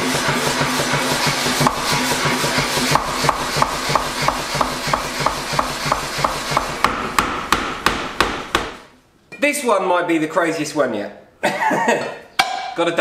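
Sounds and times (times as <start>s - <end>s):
steady machine drone: 0.0s - 8.2s
power hammer striking wood: 0.0s - 8.9s.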